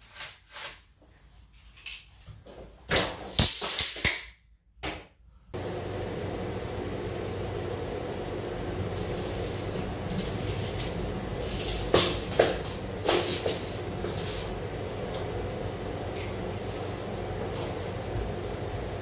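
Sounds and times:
mechanical hum: 0:05.2 - 0:19.0.

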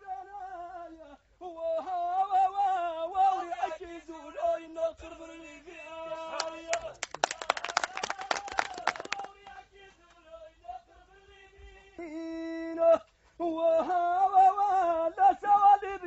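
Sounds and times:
man singing: 0:00.0 - 0:16.0
men clapping: 0:06.4 - 0:09.6.

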